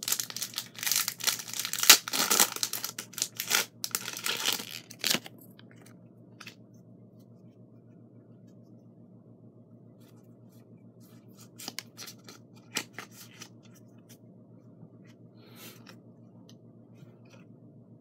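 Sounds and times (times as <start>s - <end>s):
foil wrapper tearing and crinkling: 0.0s - 5.3s.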